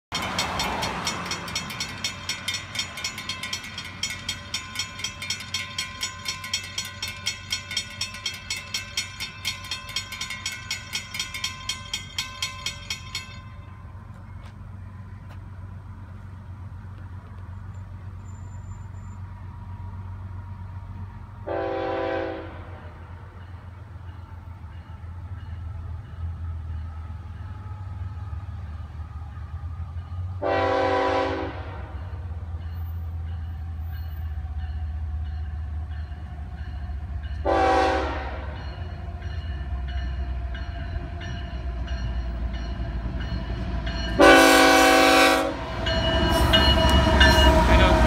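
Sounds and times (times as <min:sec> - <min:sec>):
railroad crossing bell: 0:00.1 - 0:48.0
road traffic rumble: 0:00.1 - 0:48.0
distant train horn: 0:21.0 - 0:23.4, 0:29.7 - 0:32.4, 0:36.7 - 0:42.4, 0:43.5 - 0:48.0.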